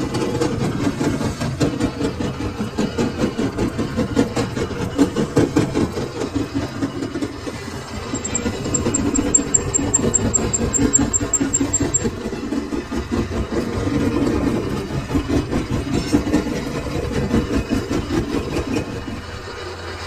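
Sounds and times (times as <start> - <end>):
metal lathe running: 0.0 - 20.0.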